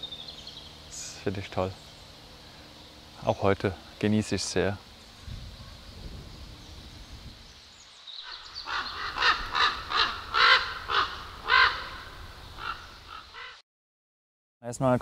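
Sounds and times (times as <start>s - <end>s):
crow cawing: 8.2s - 13.6s.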